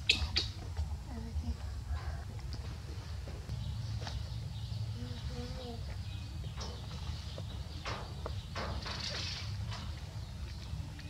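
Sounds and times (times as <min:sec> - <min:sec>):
monkey cooing calls: 0:00.0 - 0:00.6.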